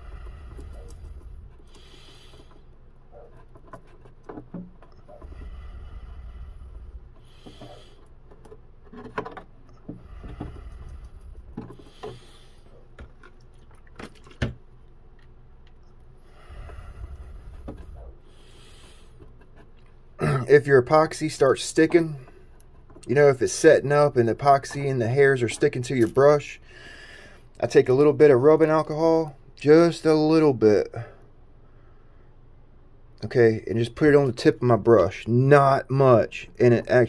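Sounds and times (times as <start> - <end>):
soft rushes of noise: 0.0 - 3.3, 5.1 - 8.0, 16.3 - 19.2.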